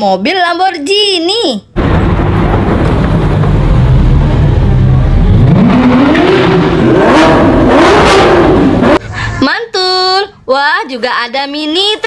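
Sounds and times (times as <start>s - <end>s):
car engine revving: 1.8s - 9.0s.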